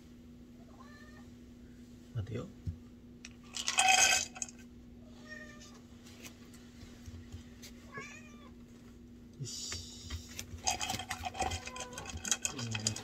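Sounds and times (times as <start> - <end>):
cat meowing: 7.9 - 8.5.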